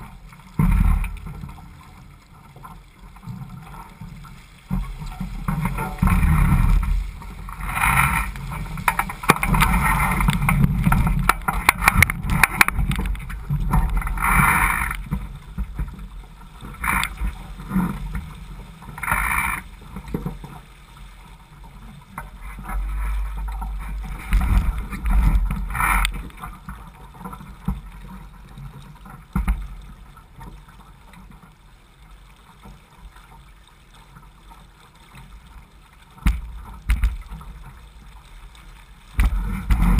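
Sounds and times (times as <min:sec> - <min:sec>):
water splashing along a hull: 0:00.0 - 0:39.9.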